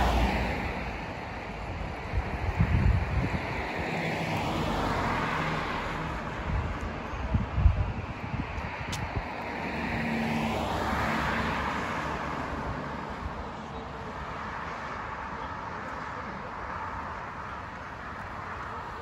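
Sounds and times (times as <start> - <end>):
car passing: 0.0 - 19.0.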